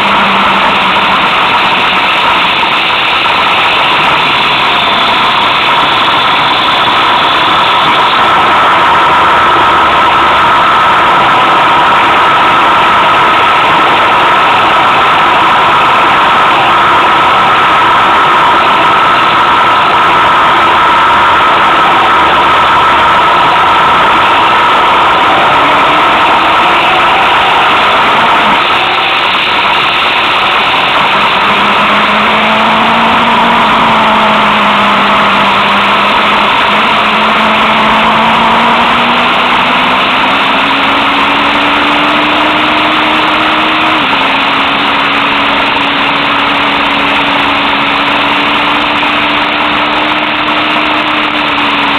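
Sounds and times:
motorcycle engine at road speed: 0:00.0 - 0:51.9.

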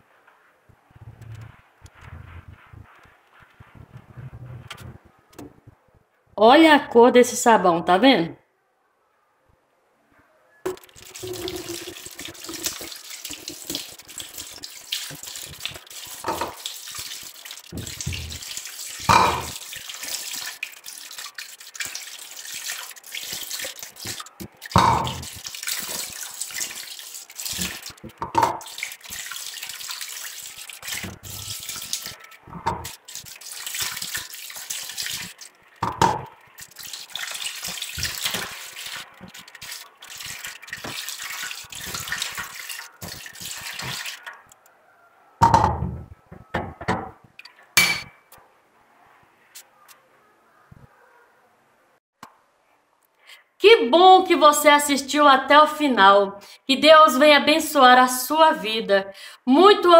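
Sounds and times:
thumps and splashes: 0:10.7 - 0:44.5, 0:45.4 - 0:48.2
tap running into metal sink: 0:15.1 - 0:16.6, 0:17.8 - 0:18.4.

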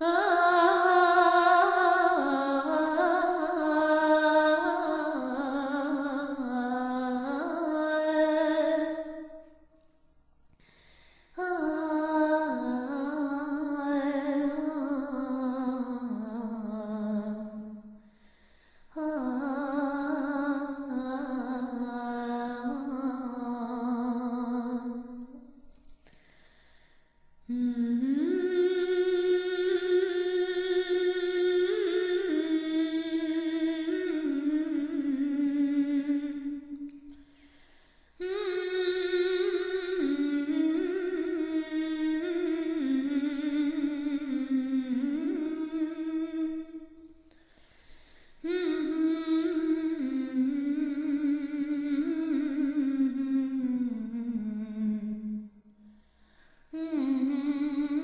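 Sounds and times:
person humming a slow melody: 0:27.4 - 0:37.2, 0:38.2 - 0:47.4, 0:48.4 - 0:55.9, 0:56.8 - 0:58.0.

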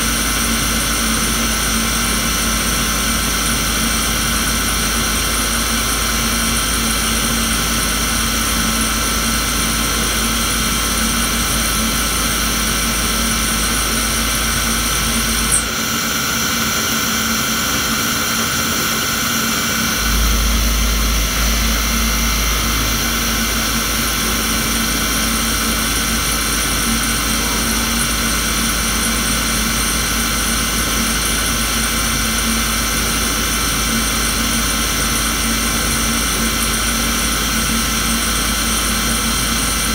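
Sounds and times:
high machine whines: 0:00.0 - 0:39.9
low hum: 0:02.7 - 0:30.7
lathe machine din: 0:09.0 - 0:30.9.

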